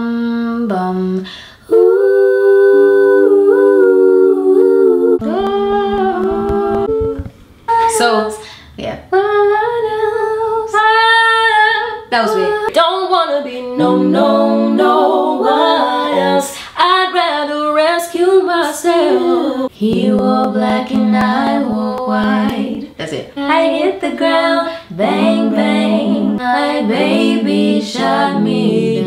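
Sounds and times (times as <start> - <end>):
women singing a cappella: 0.0 - 29.0.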